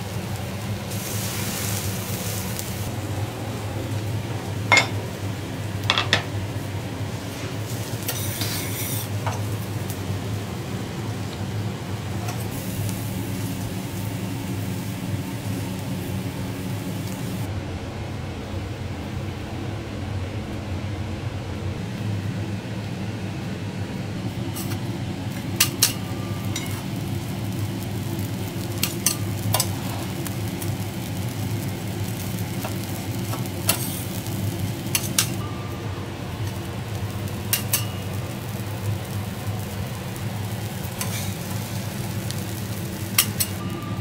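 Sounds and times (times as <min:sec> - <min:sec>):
griddle sizzling: 0:00.0 - 0:17.6, 0:18.4 - 0:44.0
spatulas clicking and scraping on steel: 0:25.6 - 0:26.8, 0:28.8 - 0:29.8, 0:34.9 - 0:35.4, 0:37.5 - 0:38.0, 0:41.0 - 0:41.4, 0:43.2 - 0:43.6.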